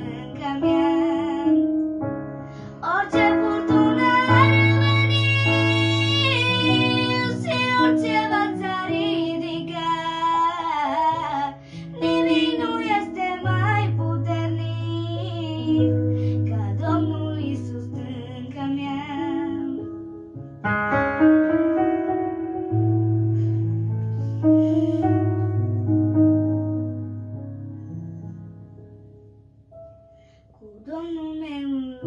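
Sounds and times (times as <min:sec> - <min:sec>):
girl singing: 0:00.0 - 0:01.8, 0:02.8 - 0:19.9, 0:30.6 - 0:32.0
electronic keyboard chords: 0:19.2 - 0:30.0.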